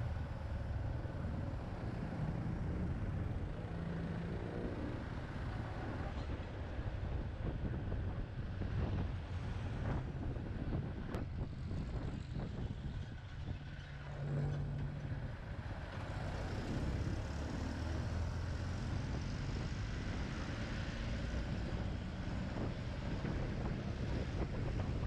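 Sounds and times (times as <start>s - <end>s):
wind on microphone: 1.2s - 13.8s, 18.8s - 25.0s.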